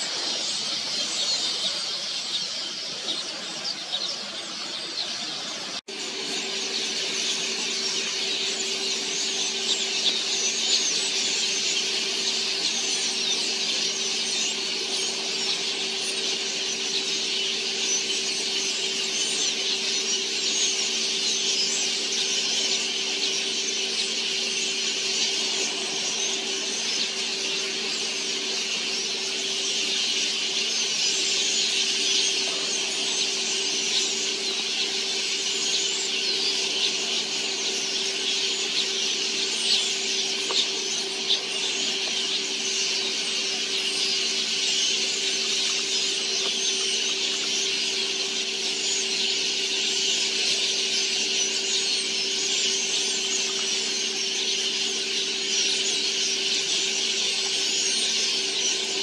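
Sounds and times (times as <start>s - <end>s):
flock of birds twittering: 0.0s - 59.0s
steady low hum: 4.2s - 59.0s.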